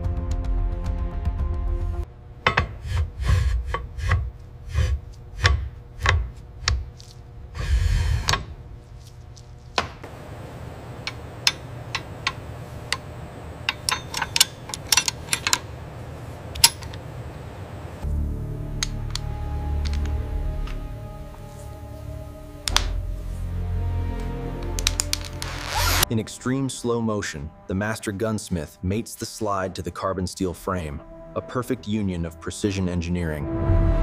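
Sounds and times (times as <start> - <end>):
light metallic clicks: 11.0 - 15.8
metal gun parts knocking: 13.7 - 15.7.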